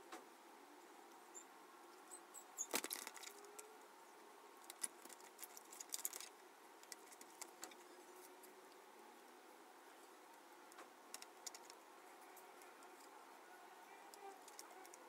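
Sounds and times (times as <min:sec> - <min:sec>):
wet paper crackling and clicking: 0:02.6 - 0:03.7, 0:04.6 - 0:08.4, 0:10.7 - 0:13.2, 0:14.1 - 0:15.0.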